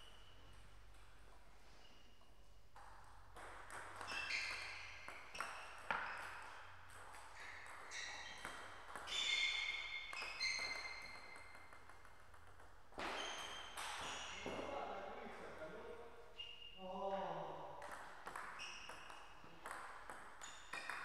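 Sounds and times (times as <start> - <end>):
shoes squeaking on floor: 4.1 - 6.7, 7.3 - 11.7, 13.0 - 15.1, 16.3 - 16.8, 18.5 - 19.5.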